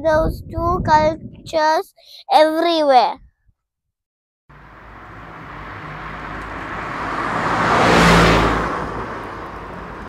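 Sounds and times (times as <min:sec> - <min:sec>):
vehicle passing by: 0:04.5 - 0:10.0.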